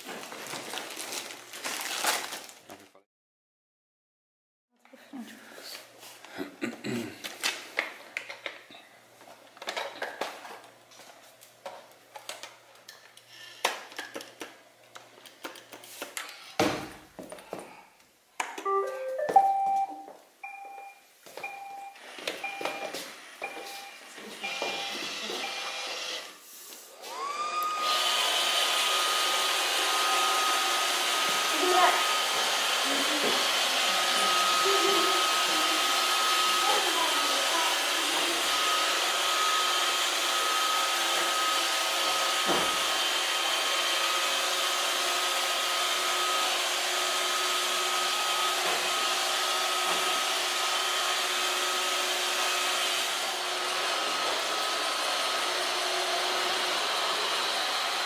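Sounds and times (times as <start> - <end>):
robot vacuum motor whine: 24.4 - 26.4, 27.0 - 58.0
vacuum brushes and suction hum: 26.8 - 44.5.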